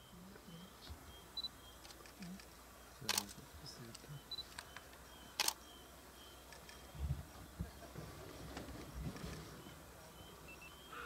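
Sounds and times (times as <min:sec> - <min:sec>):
camera shutter clicks: 0:03.1 - 0:03.4, 0:05.4 - 0:05.6.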